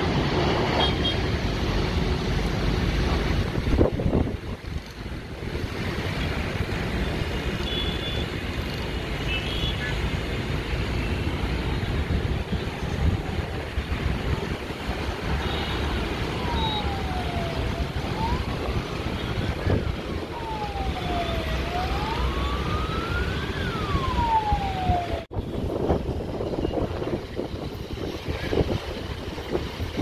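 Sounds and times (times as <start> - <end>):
wailing siren: 15.2 - 25.5.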